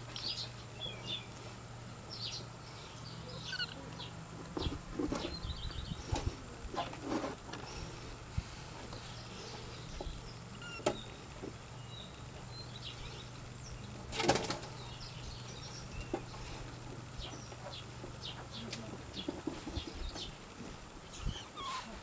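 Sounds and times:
steady low hum: 0:00.0 - 0:22.0
faint bird chirps: 0:02.2 - 0:06.2, 0:09.0 - 0:11.2, 0:21.0 - 0:22.0.

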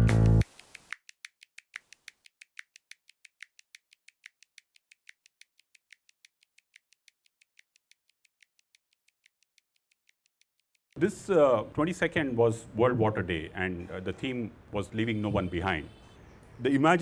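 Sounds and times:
faint even ticking: 0:00.5 - 0:11.0.

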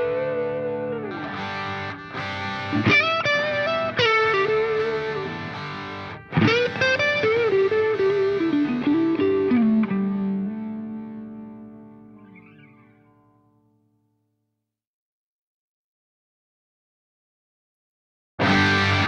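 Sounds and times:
guitar-led background music: 0:00.0 - 0:13.9, 0:18.4 - 0:19.0.

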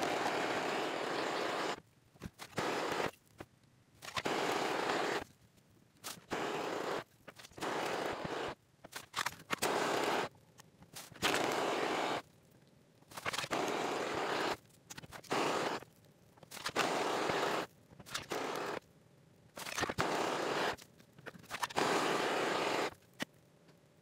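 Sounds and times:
spray-paint can hissing: 0:15.2 - 0:15.8, 0:16.7 - 0:17.7, 0:21.6 - 0:22.9.

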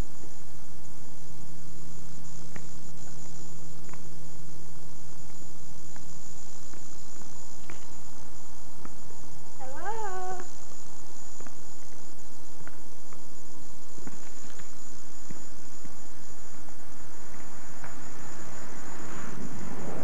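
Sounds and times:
constant high whine: 0:00.0 - 0:20.0
steady hiss: 0:00.0 - 0:20.0
rushing noise: 0:15.4 - 0:20.0.

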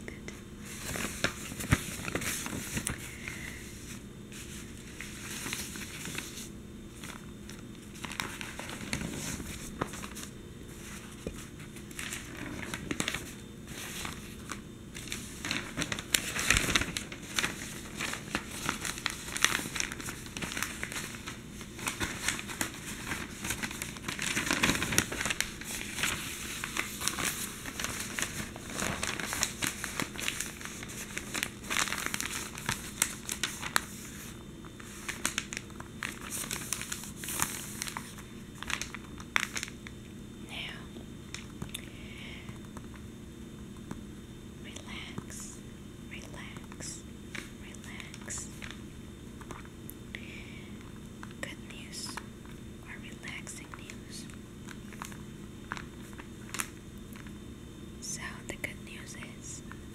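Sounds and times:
newspaper pages rustling: 0:00.6 - 0:40.0, 0:46.5 - 0:48.8, 0:53.5 - 0:57.4.

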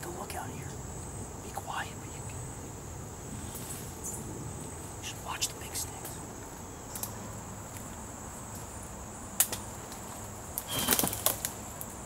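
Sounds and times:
crickets droning: 0:00.0 - 0:12.0
crackling clicks: 0:10.6 - 0:12.0.

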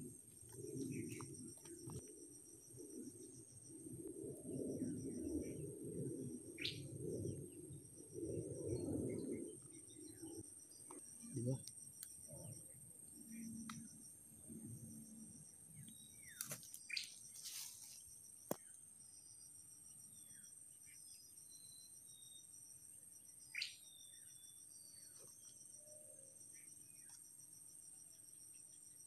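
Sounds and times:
insects trilling: 0:00.0 - 0:29.0
rustles and clicks of twigs: 0:15.8 - 0:18.8.

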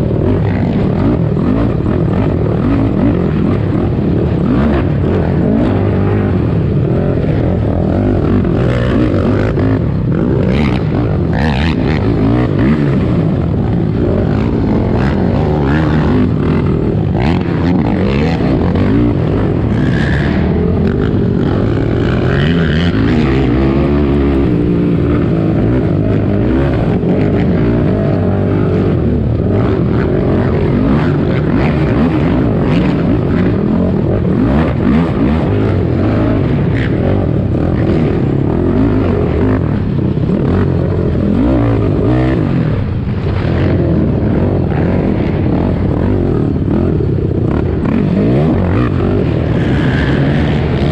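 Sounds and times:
quad engine running hard: 0:00.0 - 0:50.9.

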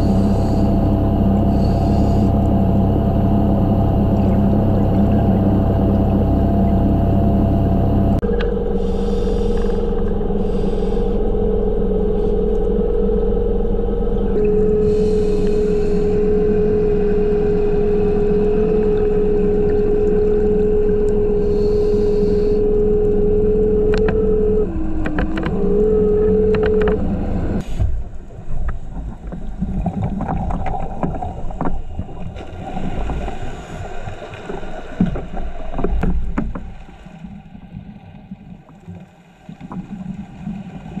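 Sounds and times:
regulator bubbles hissing: 0:00.0 - 0:06.9, 0:08.2 - 0:36.0
electric motor whining underwater: 0:00.0 - 0:37.6.

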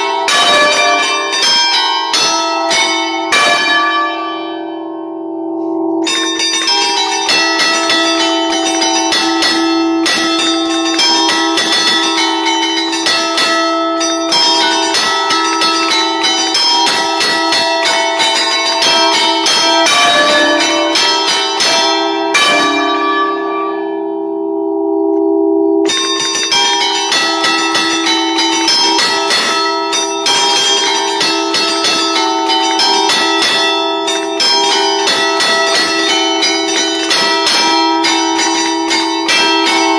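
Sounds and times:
church bells ringing a melody: 0:00.0 - 0:39.9.

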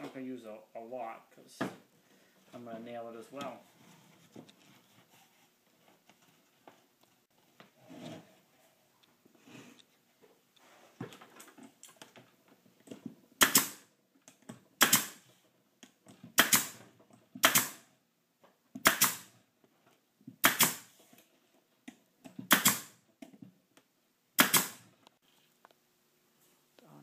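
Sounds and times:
pneumatic nailer shots: 0:13.4 - 0:13.9, 0:14.8 - 0:15.3, 0:16.3 - 0:16.8, 0:17.4 - 0:17.9, 0:18.8 - 0:19.4, 0:20.4 - 0:21.0, 0:22.5 - 0:23.0, 0:24.4 - 0:24.9.

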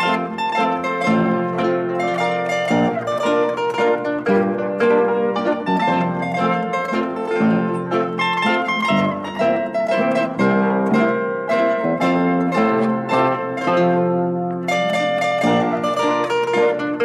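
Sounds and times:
plucked string music: 0:00.0 - 0:17.0.

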